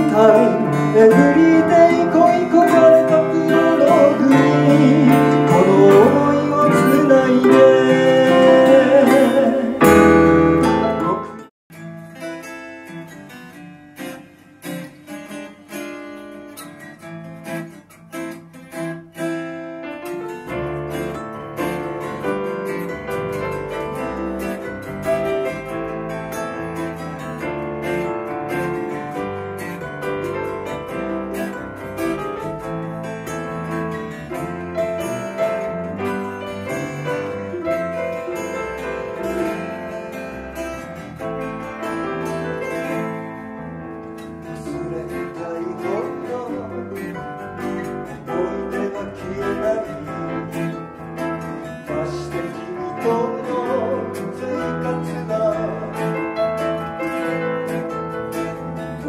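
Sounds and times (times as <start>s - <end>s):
keyboard: 0.0s - 11.5s
acoustic guitar: 0.0s - 59.0s.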